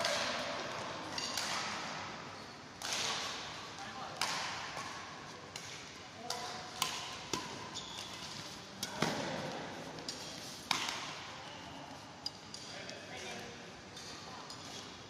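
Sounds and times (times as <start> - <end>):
rackets hitting shuttlecock: 0.0 - 2.2, 2.8 - 11.3.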